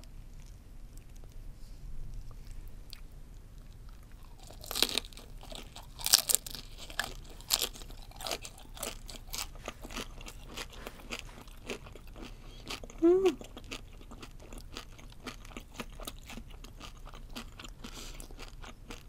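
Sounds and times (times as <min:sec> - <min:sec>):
chewing crackles: 0:00.0 - 0:01.5, 0:02.1 - 0:19.0
crunching fried shell: 0:03.6 - 0:19.0.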